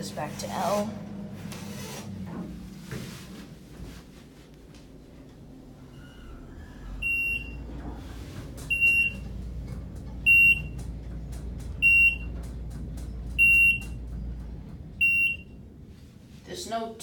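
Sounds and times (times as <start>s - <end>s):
elevator car humming: 0.0s - 17.0s
elevator floor beeper: 7.0s - 7.9s, 8.6s - 15.8s.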